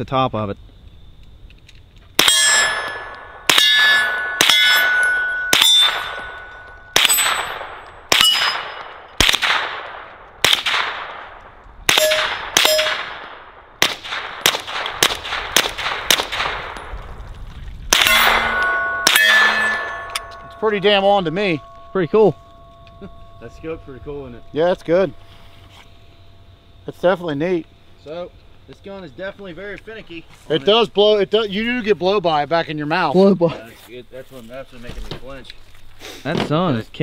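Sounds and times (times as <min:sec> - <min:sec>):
steel target ringing: 0:02.2 - 0:09.2, 0:11.9 - 0:13.3, 0:17.9 - 0:28.3
suppressed gunshots: 0:07.0 - 0:16.9.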